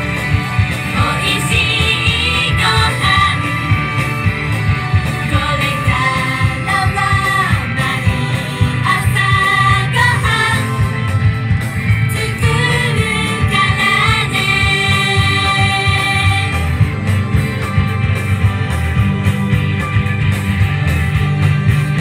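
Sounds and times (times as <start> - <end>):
upbeat backing music: 0.0 - 22.0
female vocal group singing: 0.9 - 3.6, 5.3 - 10.8, 12.1 - 16.6.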